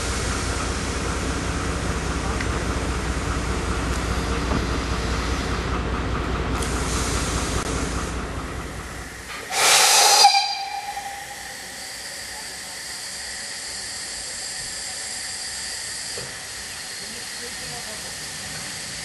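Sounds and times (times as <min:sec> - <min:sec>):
diesel locomotive rumble: 0:00.0 - 0:19.0
steam locomotive steam burst: 0:06.6 - 0:08.0, 0:09.0 - 0:19.0.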